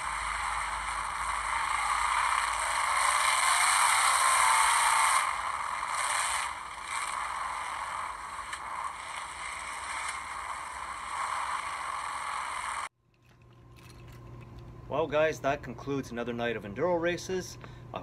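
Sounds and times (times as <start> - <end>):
race cars engine and tyre noise: 0.0 - 12.9.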